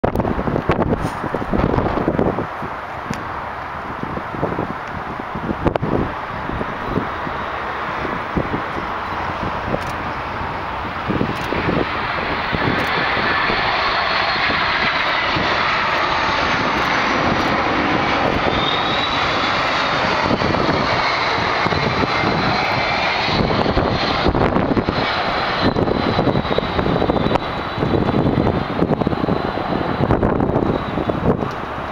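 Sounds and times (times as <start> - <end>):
jet roar passing overhead: 0.0 - 31.9.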